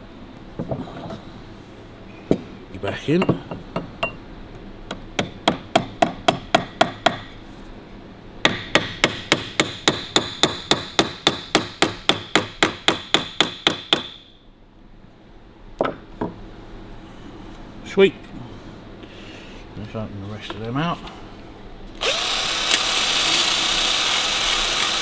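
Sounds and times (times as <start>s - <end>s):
hammer tapping on steel punch: 4.9s - 7.3s.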